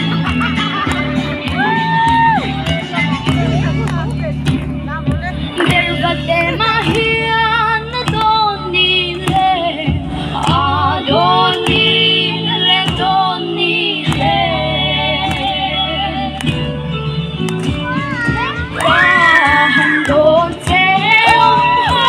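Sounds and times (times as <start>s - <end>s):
steady musical accompaniment: 0.0s - 22.0s
several voices singing: 5.6s - 16.4s, 18.8s - 22.0s
sharp beats or claps: 8.0s - 8.4s, 17.4s - 22.0s.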